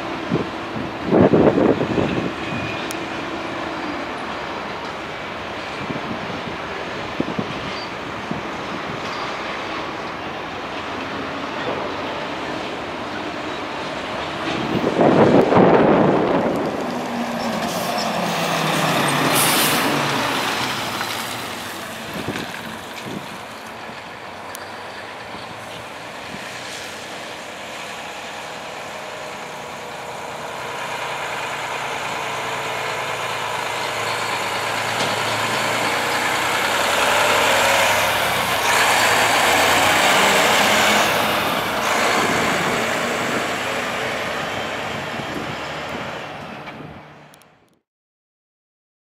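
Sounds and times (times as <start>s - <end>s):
dump truck driving past: 0.0s - 47.4s.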